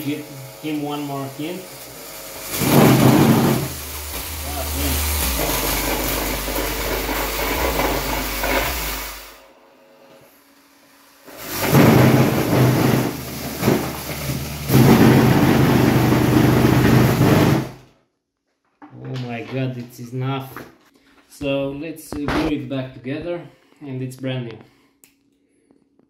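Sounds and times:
bass-heavy music from subwoofer: 2.2s - 9.4s.

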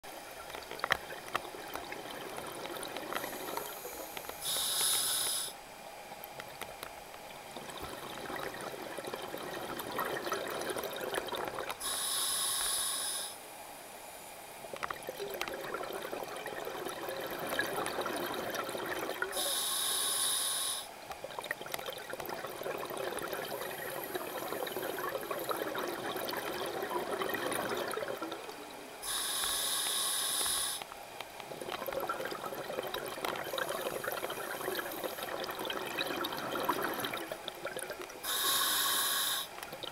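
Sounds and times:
bubbles gurgling underwater: 0.4s - 4.1s, 7.4s - 11.8s, 14.7s - 19.4s, 21.2s - 29.0s, 31.5s - 38.4s
scuba regulator hiss: 3.4s - 5.6s, 11.8s - 13.4s, 19.4s - 20.9s, 29.0s - 30.9s, 38.2s - 39.5s.

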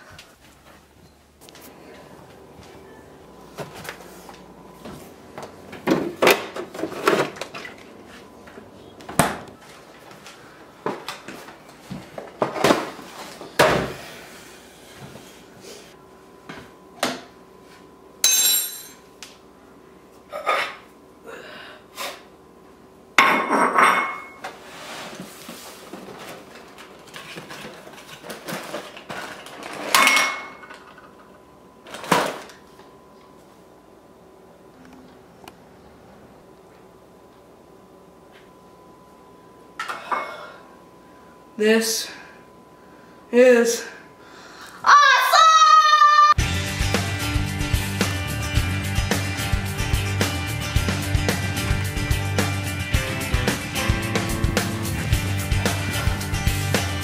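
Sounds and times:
dishes and cutlery clattering: 23.2s - 24.4s, 28.5s - 31.0s.

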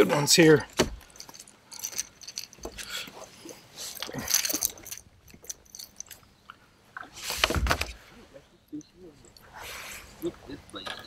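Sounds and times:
landing net rustling: 7.0s - 8.2s.

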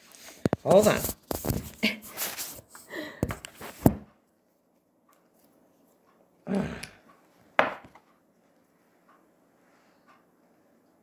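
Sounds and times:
camera handling rubbing and rustling: 0.3s - 4.0s.

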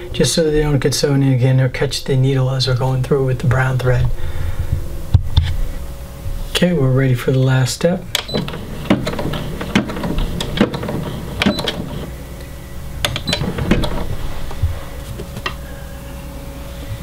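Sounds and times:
faint steady hum: 0.0s - 17.0s
embroidery machine clicking and knocking: 8.2s - 12.1s, 13.0s - 14.1s.

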